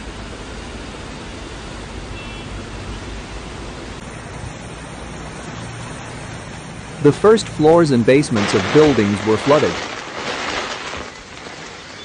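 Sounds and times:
water rushing: 4.0 - 12.0.

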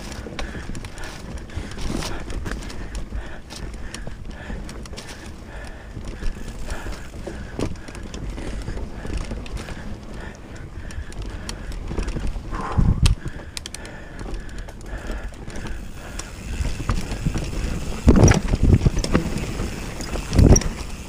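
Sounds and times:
bike rattling and knocking: 0.0 - 21.0
tyres rumbling on dirt: 15.1 - 21.0.

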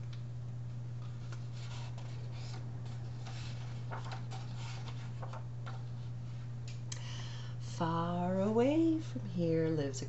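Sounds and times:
low electrical hum: 0.0 - 10.0
book pages rustling: 1.0 - 6.5.

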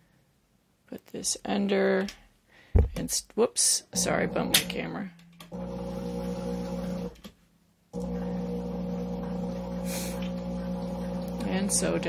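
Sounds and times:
electric sewing machine running: 5.5 - 7.2, 8.0 - 12.0.

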